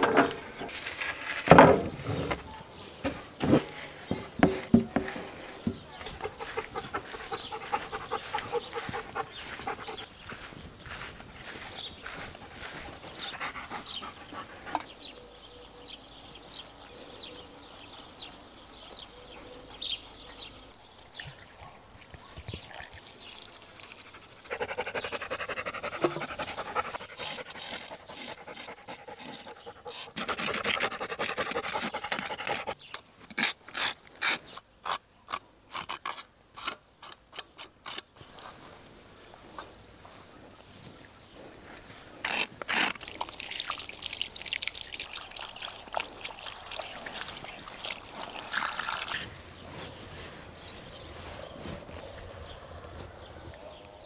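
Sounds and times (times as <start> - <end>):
knife scraping fish skin: 27.2 - 32.6, 33.3 - 38.0, 42.2 - 43.2.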